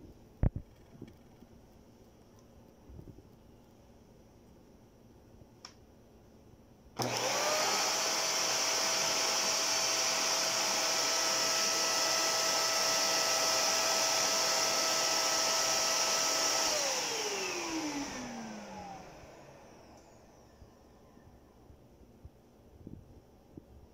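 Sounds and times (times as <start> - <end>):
handheld vacuum cleaner whine: 7.0 - 20.6.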